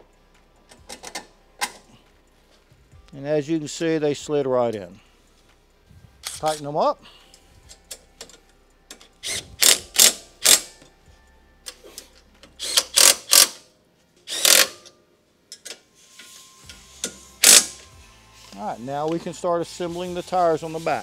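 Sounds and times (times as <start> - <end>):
ratchet wrench clicking: 7.7 - 10.7, 12.5 - 13.6, 14.3 - 14.9, 15.5 - 17.9.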